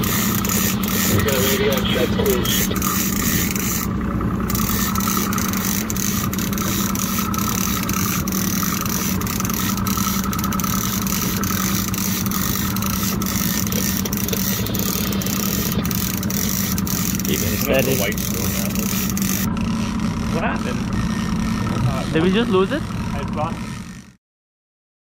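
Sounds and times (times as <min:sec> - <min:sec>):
outboard motor idling: 0:00.0 - 0:24.2.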